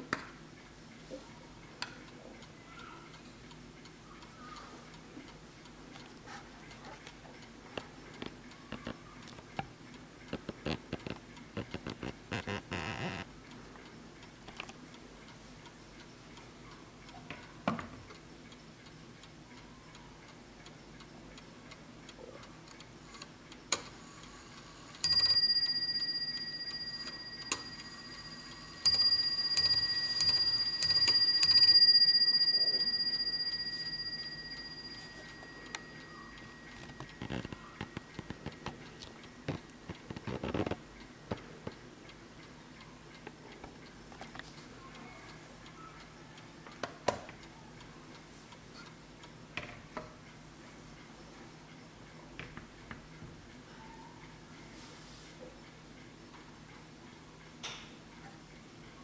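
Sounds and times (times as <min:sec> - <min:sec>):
mantel clock ticking: 0:00.4 - 0:11.8, 0:13.3 - 0:54.4
clock striking a bell: 0:25.0 - 0:37.8.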